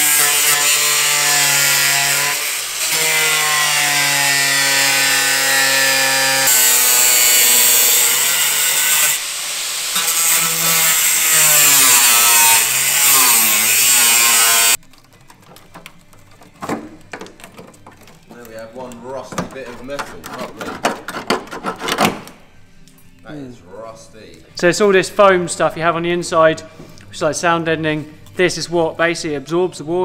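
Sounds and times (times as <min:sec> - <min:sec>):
angle grinder cutting sheet steel: 0:00.0 - 0:14.8.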